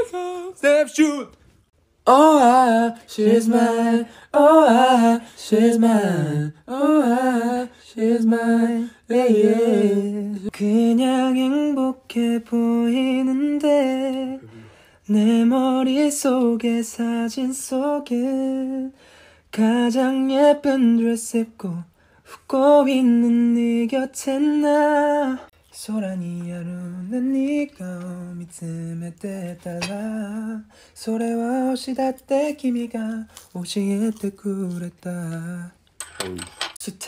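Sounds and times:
young man singing unaccompanied: 0:02.0 - 0:35.8
breathing between phrases: 0:14.4 - 0:15.1, 0:18.9 - 0:19.5.

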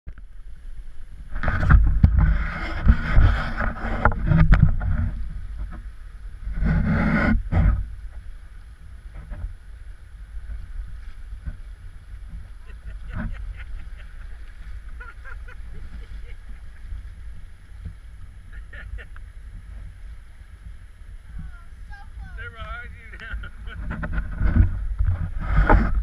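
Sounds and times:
rumbling and knocking on microphone: 0:01.3 - 0:08.3, 0:09.1 - 0:09.6, 0:10.4 - 0:20.0, 0:20.6 - 0:26.0.

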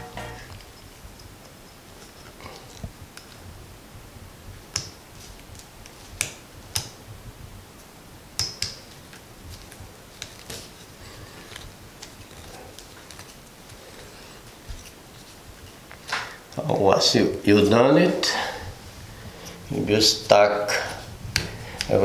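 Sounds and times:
wires clicking and rustling: 0:08.4 - 0:16.7.

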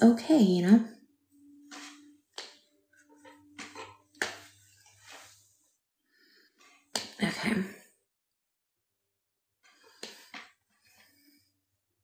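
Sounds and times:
hair rustling: 0:01.6 - 0:05.7.

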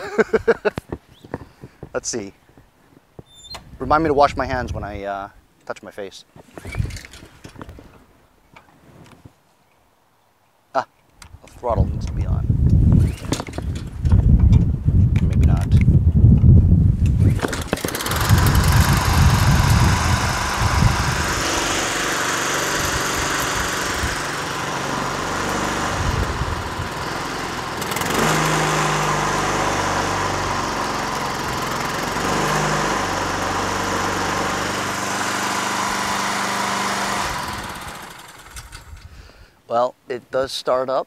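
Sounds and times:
lawn mower engine running: 0:17.2 - 0:39.2.

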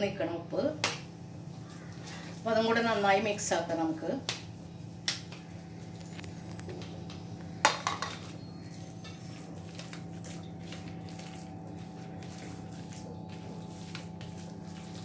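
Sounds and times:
steady low hum: 0:00.0 - 0:15.0
spoon scraping a plate: 0:07.8 - 0:15.0
hand kneading wet mixture: 0:08.1 - 0:15.0.

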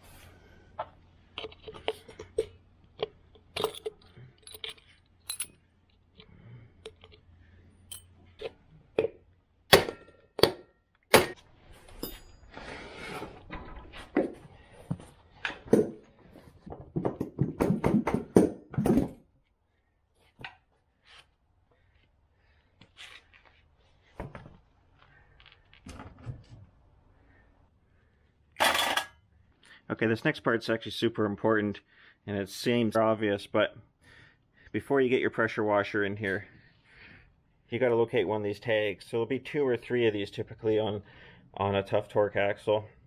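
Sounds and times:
hand tools clinking on metal: 0:03.4 - 0:05.6
tools set down on concrete: 0:11.3 - 0:17.7, 0:28.6 - 0:29.2.

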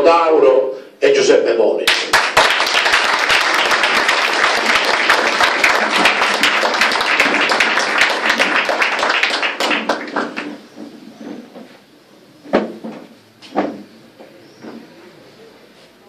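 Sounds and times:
crowd applauding: 0:01.9 - 0:10.7.

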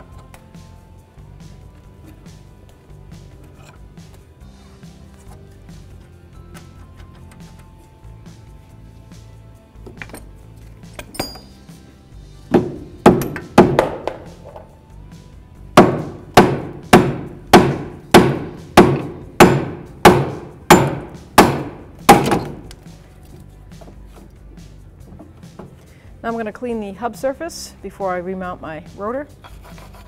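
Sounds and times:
hammer striking metal: 0:12.5 - 0:14.2, 0:15.8 - 0:22.7.

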